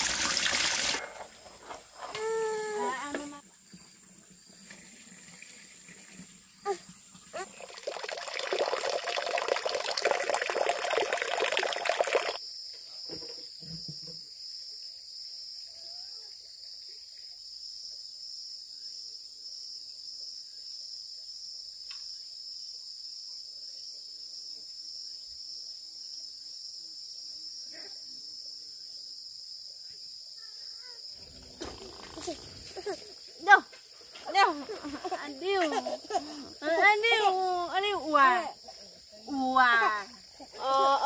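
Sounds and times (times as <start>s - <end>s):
running water: 0.0s - 12.4s
high-pitched insect chorus: 11.4s - 41.0s.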